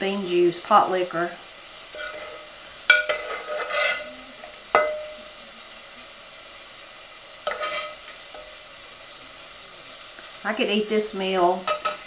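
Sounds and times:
food sizzling in a pan: 0:00.0 - 0:12.0
spoon scraping pot: 0:01.9 - 0:05.2, 0:07.4 - 0:08.5
metal spoon knocking on pot: 0:04.7 - 0:05.2, 0:11.6 - 0:12.0.

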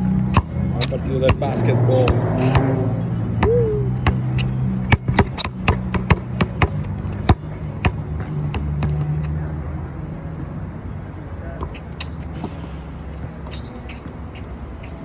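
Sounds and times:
basketball bouncing on court: 0:00.3 - 0:02.8, 0:03.4 - 0:09.1.

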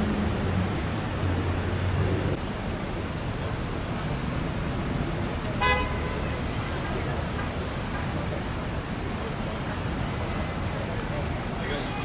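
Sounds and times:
road traffic noise: 0:00.0 - 0:12.0
car horn toot: 0:05.6 - 0:06.2.

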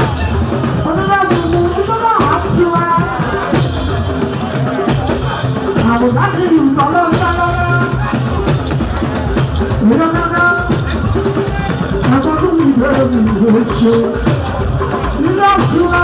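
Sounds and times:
person praise-singing: 0:00.0 - 0:08.3, 0:09.7 - 0:16.0
drums and percussion: 0:00.0 - 0:16.0.

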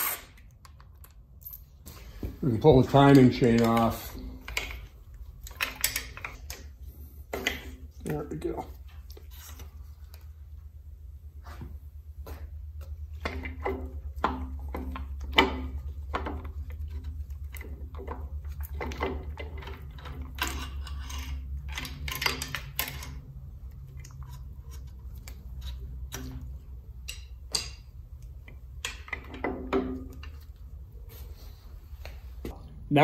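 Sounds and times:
metal clinking and rattling: 0:13.2 - 0:23.3.

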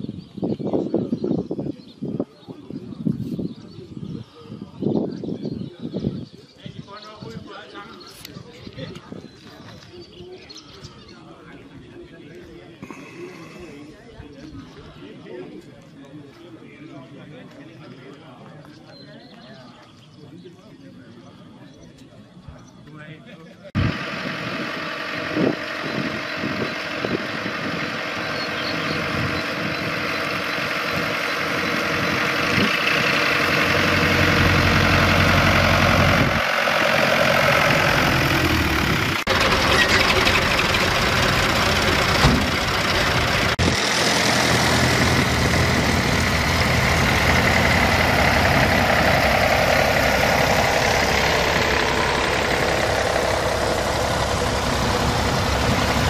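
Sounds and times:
tractor engines driving past: 0:23.7 - 0:56.0.

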